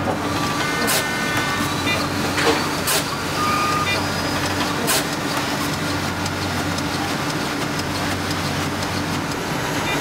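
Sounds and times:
printing machinery drone: 0:00.0 - 0:10.0
short beep: 0:03.4 - 0:04.0.

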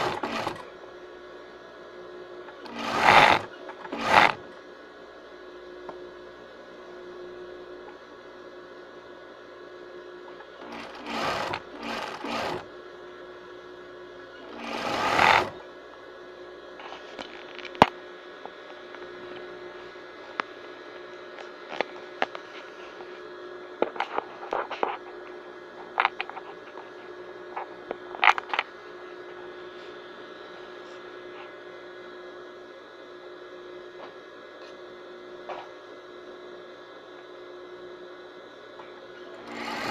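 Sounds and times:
sewing machine stitching: 0:00.0 - 0:00.7, 0:02.5 - 0:04.5, 0:10.4 - 0:12.7, 0:14.4 - 0:15.6, 0:39.2 - 0:39.9
steady hum: 0:00.0 - 0:39.9.

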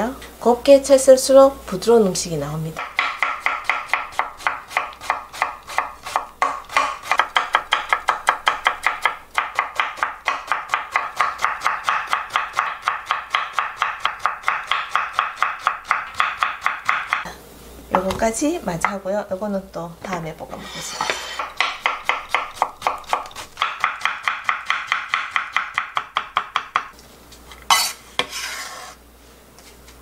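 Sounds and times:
knife chopping on wooden board: 0:02.8 - 0:17.2, 0:20.9 - 0:26.9, 0:27.7 - 0:28.9.

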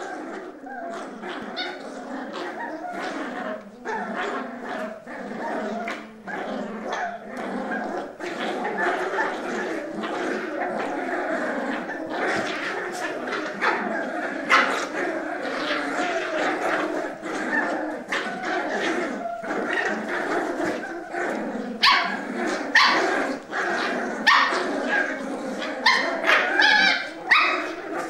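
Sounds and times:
puppies growling: 0:00.0 - 0:28.0
sharp puppy barks: 0:21.8 - 0:22.2.

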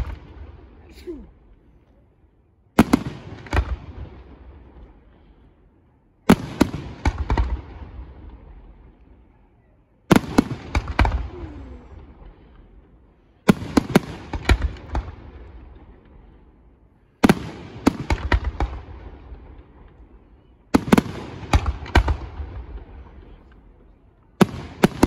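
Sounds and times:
firework bangs with rumbling echo: 0:02.8 - 0:05.0, 0:06.3 - 0:09.0, 0:10.1 - 0:12.8, 0:13.4 - 0:16.2, 0:17.2 - 0:19.9, 0:20.7 - 0:23.4, 0:24.4 - 0:25.0.

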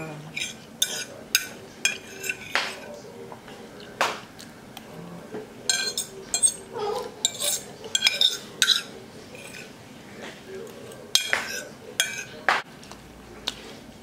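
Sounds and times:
fork scraping ceramic plate: 0:00.3 - 0:03.0, 0:05.7 - 0:09.8, 0:10.7 - 0:12.4.

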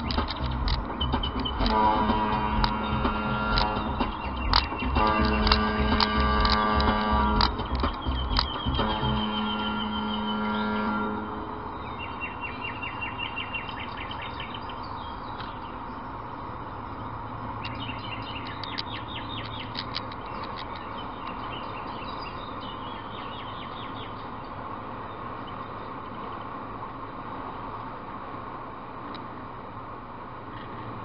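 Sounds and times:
high-pitched ticking chirps: 0:00.0 - 0:10.4, 0:11.8 - 0:24.6
car road and engine noise: 0:00.0 - 0:31.0.

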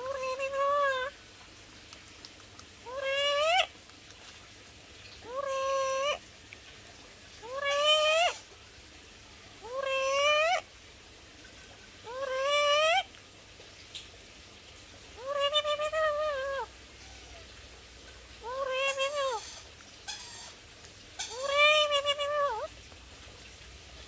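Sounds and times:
parrot calling: 0:00.0 - 0:01.1, 0:05.2 - 0:06.2, 0:07.4 - 0:08.4, 0:09.6 - 0:10.6, 0:12.0 - 0:13.0, 0:15.2 - 0:16.7, 0:18.4 - 0:20.6, 0:21.2 - 0:22.7.

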